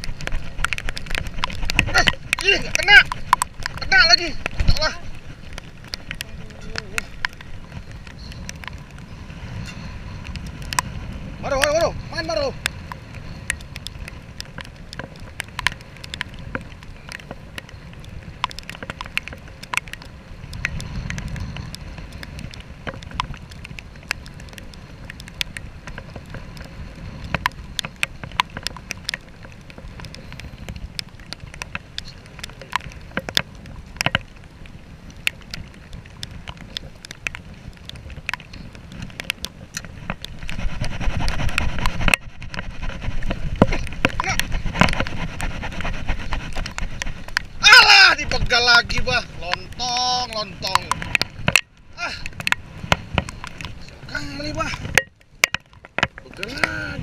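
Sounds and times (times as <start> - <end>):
sharp ticks and knocks: 0.0 - 9.0, 9.6 - 56.9
sea noise: 0.0 - 57.0
wind: 0.0 - 57.0.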